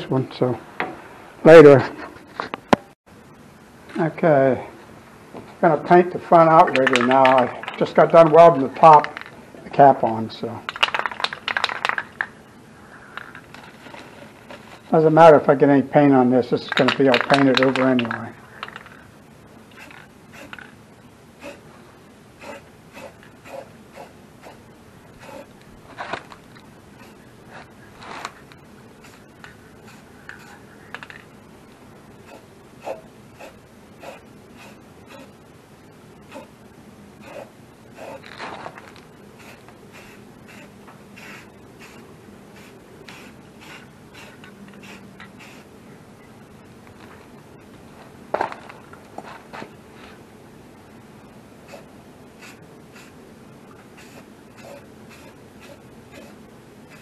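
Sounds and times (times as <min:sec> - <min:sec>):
spray-paint can hissing: 0:19.7 - 0:20.8, 0:29.0 - 0:31.2, 0:39.4 - 0:45.7, 0:51.7 - 0:53.2, 0:54.0 - 0:56.3.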